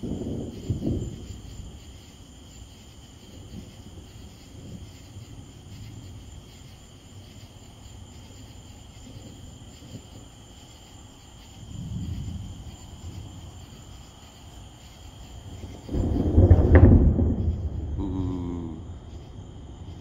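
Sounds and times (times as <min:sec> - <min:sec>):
crickets trilling: 0:00.0 - 0:20.0
loud low rumble: 0:17.7 - 0:18.8.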